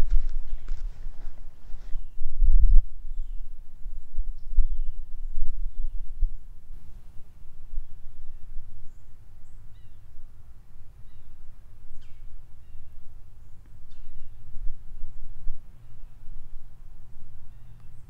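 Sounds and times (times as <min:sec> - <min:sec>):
steady low rumble: 0:00.0 - 0:18.0
faint bird chirps: 0:03.0 - 0:10.1, 0:10.9 - 0:16.5, 0:17.4 - 0:18.0.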